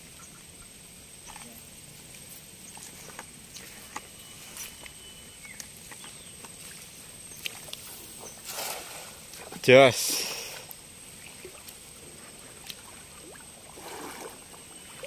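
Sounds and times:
net splashing into water: 8.4s - 9.6s, 12.6s - 15.0s.

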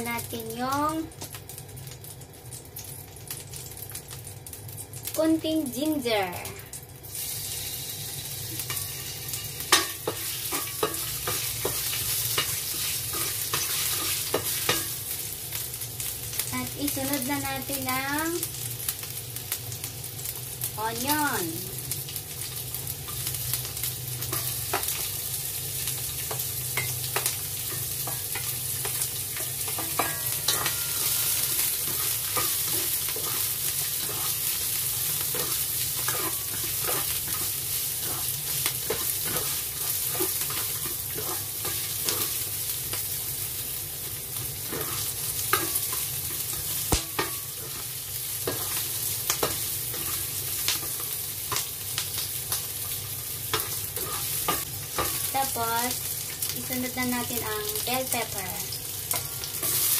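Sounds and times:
onion sizzling in hot oil: 0.0s - 59.9s
spatula scraping and tapping wok: 8.1s - 15.2s, 22.4s - 55.6s, 57.7s - 59.9s.

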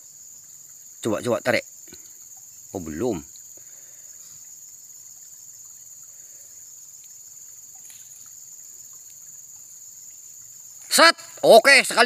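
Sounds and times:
insect chorus drone: 0.0s - 12.0s
faint ticks: 1.8s - 2.7s, 3.3s - 10.9s.

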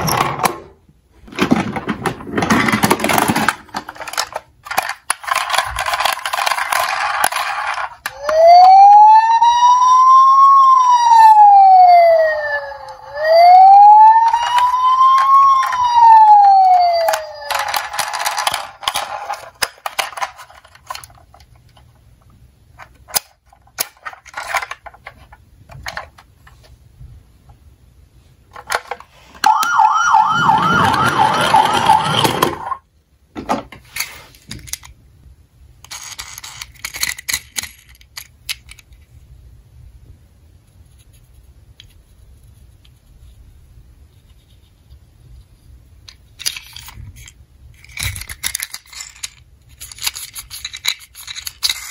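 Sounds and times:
toy electronic siren wailing: 8.1s - 18.6s, 29.4s - 32.8s
fast yelping siren: 8.2s - 17.7s, 29.4s - 32.8s
plastic toy clicks: 35.8s - 39.0s.

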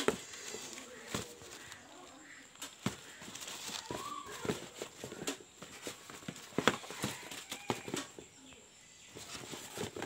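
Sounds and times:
cardboard rustling: 0.0s - 1.9s, 2.6s - 8.4s, 9.1s - 10.0s
shoes knocking on cardboard box: 2.8s - 8.2s.

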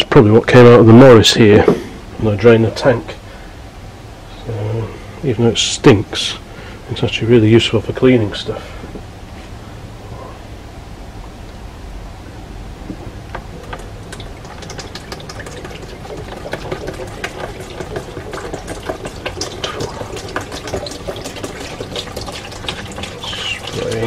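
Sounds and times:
liquid pouring into plastic tray: 13.6s - 24.0s.

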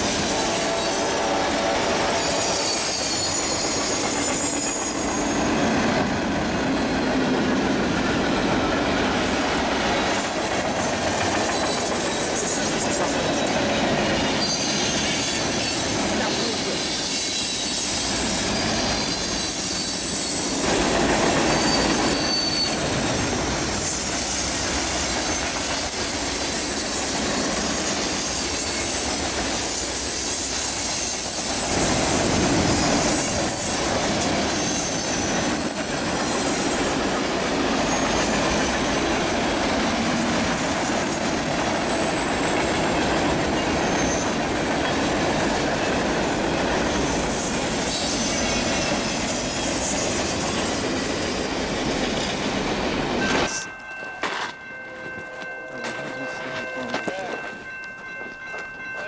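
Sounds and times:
steel wheels rumbling on rail: 0.0s - 59.0s
high-pitched wheel squeals: 2.0s - 5.9s, 14.2s - 20.6s, 21.4s - 22.9s.

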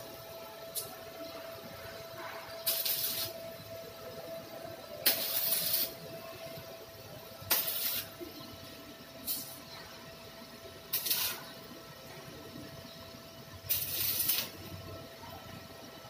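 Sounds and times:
faint steady whine: 0.0s - 16.0s
arc welding crackling hiss: 0.7s - 4.0s, 4.8s - 6.8s, 7.4s - 9.9s, 10.6s - 11.8s, 13.5s - 15.3s.

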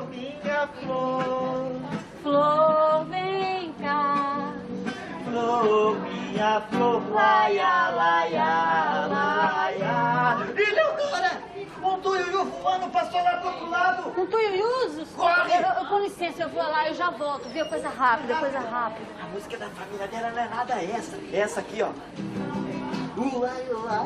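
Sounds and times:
woman and man singing: 0.0s - 10.6s
strummed acoustic guitar: 0.0s - 11.0s, 22.0s - 24.0s.

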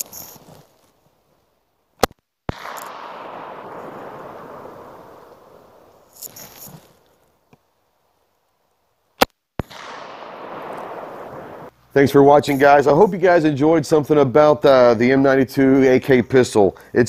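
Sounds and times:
pistol shots: 2.0s - 6.0s, 9.2s - 11.7s.

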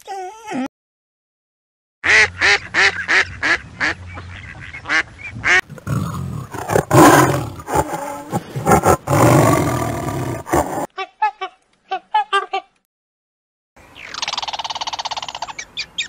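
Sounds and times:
tiger growling and roaring: 5.7s - 10.9s.

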